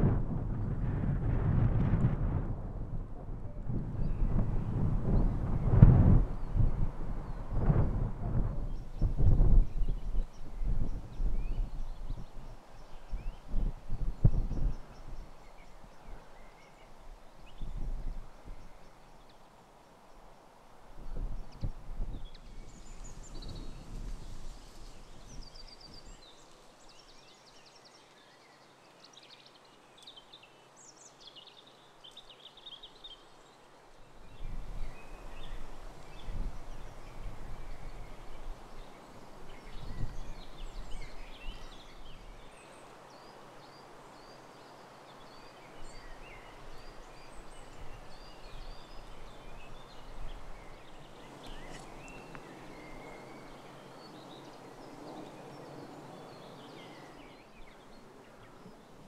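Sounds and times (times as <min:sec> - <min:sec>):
birds singing and chirping: 0:08.5 - 0:16.8, 0:34.3 - 0:59.0.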